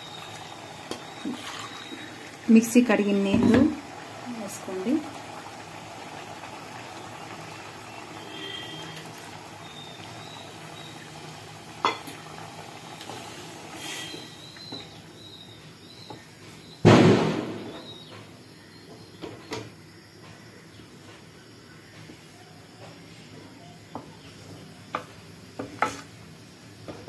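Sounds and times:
sharp knock: 16.8 - 17.8.

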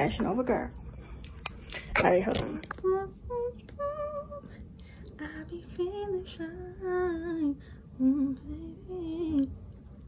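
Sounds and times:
woman singing wordless tune: 2.4 - 9.8.

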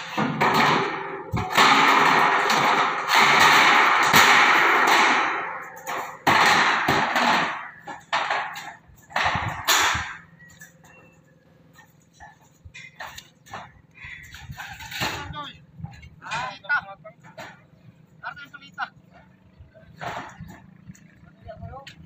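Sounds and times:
knocks on metal sheets: 0.0 - 10.2, 12.2 - 15.3, 17.2 - 17.7, 20.0 - 20.7
steel sheets clattering and scraping: 0.0 - 21.2.

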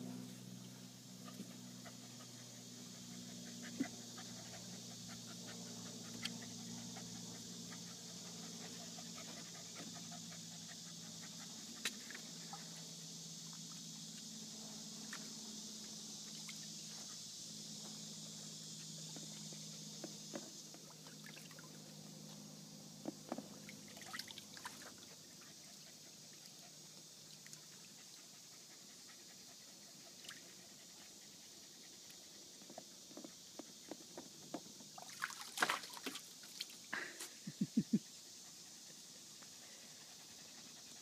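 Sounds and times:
steady low hum: 0.0 - 41.0
dog panting: 1.2 - 12.9, 27.7 - 33.7, 37.8 - 41.0.

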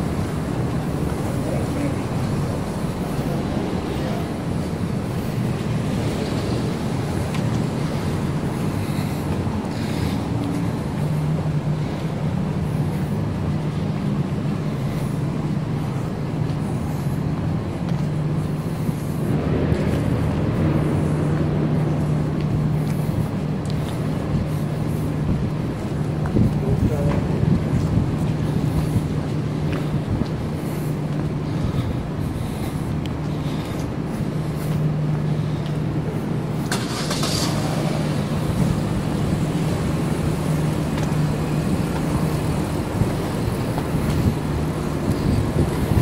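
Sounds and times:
low mechanical hum: 0.0 - 46.0
traffic noise: 0.0 - 46.0.

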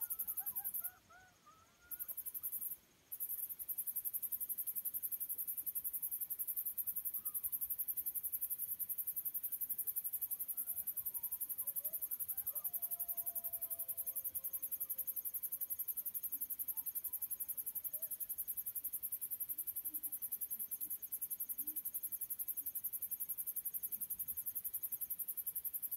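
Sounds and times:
distant coyote howls: 0.0 - 2.3, 10.5 - 15.4
faint coyote yips: 0.0 - 2.6, 10.5 - 15.0
night insects chirping: 0.0 - 25.9.

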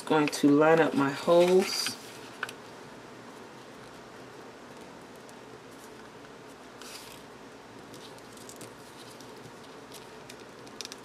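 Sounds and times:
low background hiss: 0.0 - 11.0.

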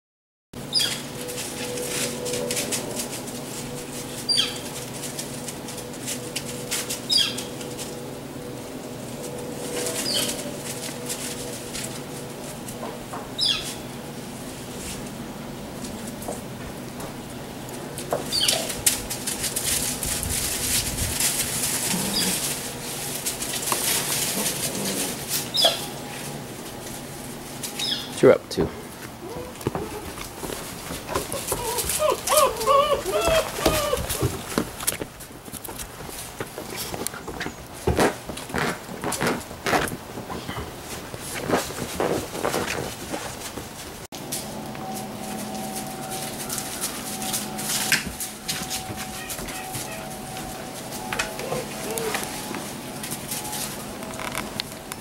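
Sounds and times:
dry leaves rustling under paws: 0.6 - 55.0
faint steady hum: 0.6 - 55.0
high-pitched squeaks: 9.1 - 13.8, 31.0 - 34.5, 44.4 - 55.0
puppy squeaks: 31.3 - 34.2.

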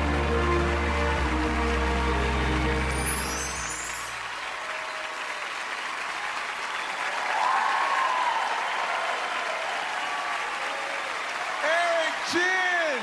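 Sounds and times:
audience applauding: 0.0 - 13.0
high shimmering effect: 2.8 - 4.3.

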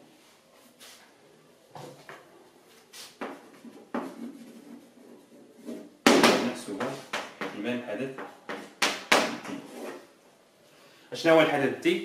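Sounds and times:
chalk tapping and scraping: 2.8 - 5.9.

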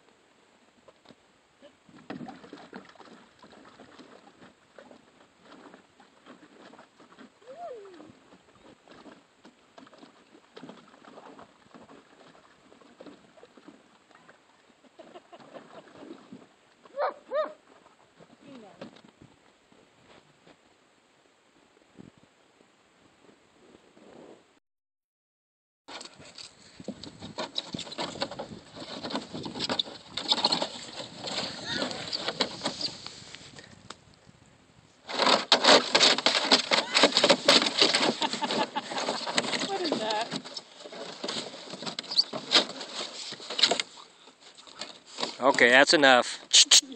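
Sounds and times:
puppy splashing in water: 2.2 - 5.8
claws scraping on plastic: 25.9 - 33.2, 35.1 - 45.6.

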